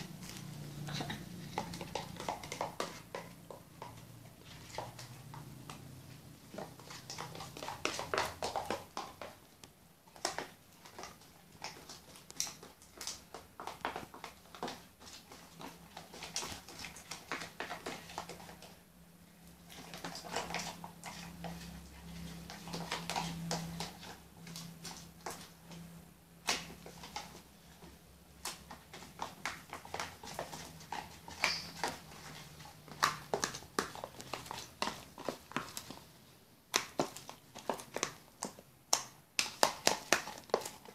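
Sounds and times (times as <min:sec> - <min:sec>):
spoon stirring thick slime: 0:00.0 - 0:40.9.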